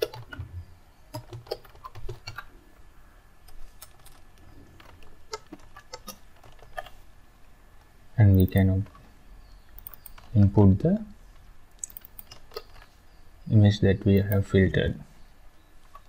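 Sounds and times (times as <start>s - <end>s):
typing on computer keyboard: 0.0s - 0.4s, 1.1s - 2.4s, 9.8s - 10.4s.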